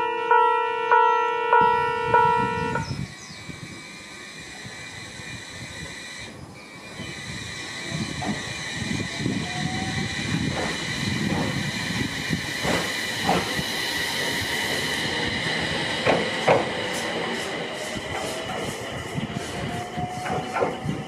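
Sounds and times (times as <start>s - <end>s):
electric train motor whine: 1.3s - 21.0s
wheels clacking over rail joints: 6.2s - 9.4s, 10.1s - 21.0s.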